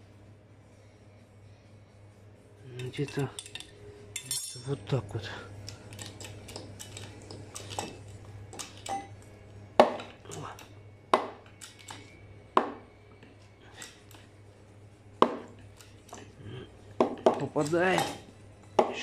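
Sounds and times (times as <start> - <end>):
low steady hum: 0.0 - 19.0
steel tools clinking and knocking: 2.8 - 4.9, 17.3 - 19.0.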